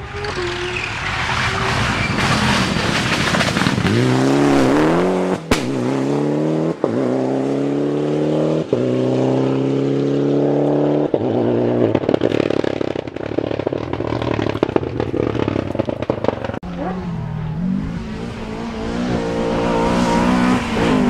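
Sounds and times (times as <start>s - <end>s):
distant rough engine crackling: 0.0s - 6.1s, 11.9s - 20.0s
rally car engine accelerating: 0.9s - 12.9s, 16.4s - 21.0s.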